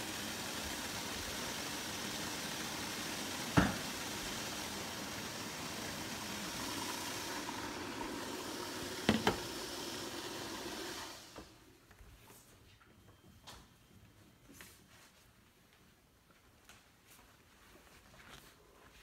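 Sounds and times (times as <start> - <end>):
steamer pot rushing hiss: 0.0 - 11.6
pot knocking: 9.0 - 9.5.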